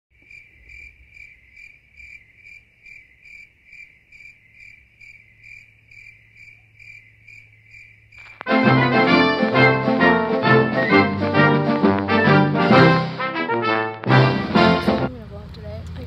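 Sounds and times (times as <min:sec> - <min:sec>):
cricket chirping: 0:00.1 - 0:08.5
music: 0:08.4 - 0:15.2.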